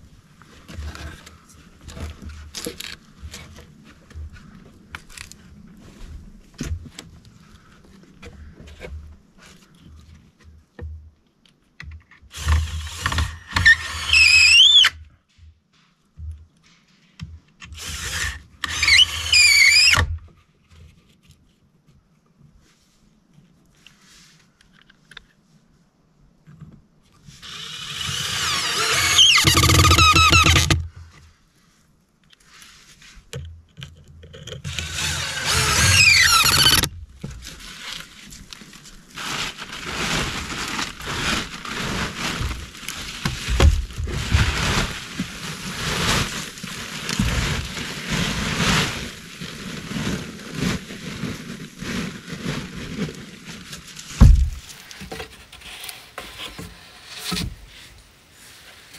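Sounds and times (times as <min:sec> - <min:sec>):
cordless drill driving screw into wood: 0:12.3 - 0:15.0, 0:17.6 - 0:20.1, 0:27.4 - 0:30.8, 0:34.7 - 0:36.9
knocks on timbers: 0:54.2 - 0:55.2.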